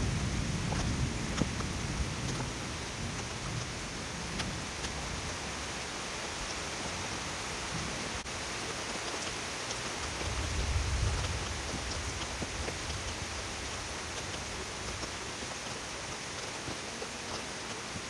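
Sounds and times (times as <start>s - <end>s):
steady rain falling: 0.0s - 18.0s
sharp ticks: 4.3s - 5.0s.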